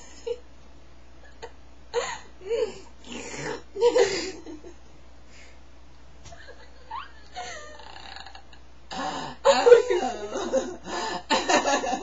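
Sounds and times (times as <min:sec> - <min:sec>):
girls laughing: 0:09.5 - 0:12.0.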